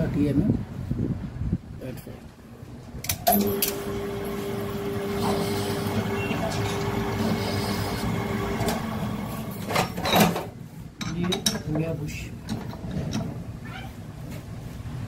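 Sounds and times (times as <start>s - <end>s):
lathe humming: 3.3s - 9.7s.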